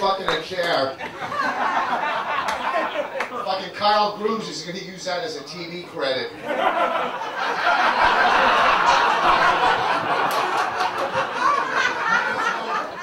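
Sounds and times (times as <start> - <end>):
audience laughing: 0.9 - 3.5, 6.3 - 13.0.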